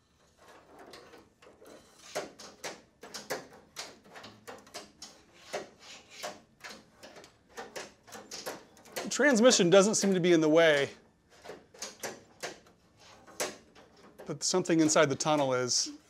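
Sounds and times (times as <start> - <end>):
metal rod clicking and scraping: 0.3 - 10.8.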